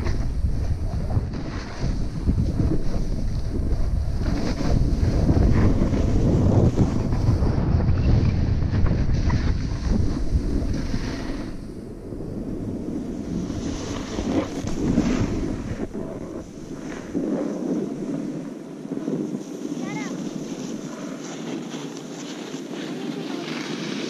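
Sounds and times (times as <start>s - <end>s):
wind rushing over microphone: 0.0s - 24.0s
snow hissing under skis: 9.4s - 11.7s, 12.6s - 24.0s.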